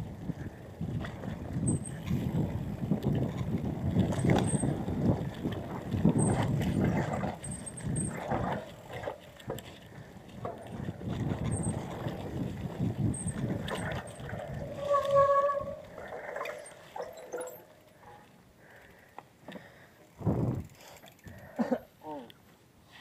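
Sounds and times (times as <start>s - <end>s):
bike rattling and knocking: 0.0s - 15.8s
bike tyres on trail: 0.0s - 21.6s.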